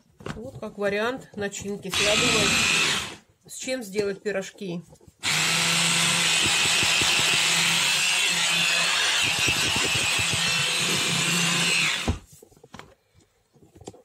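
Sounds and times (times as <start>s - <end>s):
hand blender chopping: 1.9s - 3.2s, 5.2s - 12.3s.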